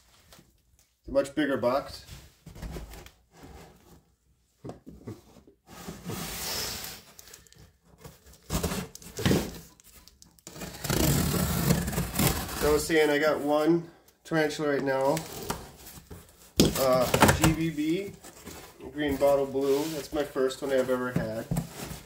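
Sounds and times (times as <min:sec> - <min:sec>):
cardboard box scraping: 0:05.2 - 0:07.1, 0:10.5 - 0:13.0.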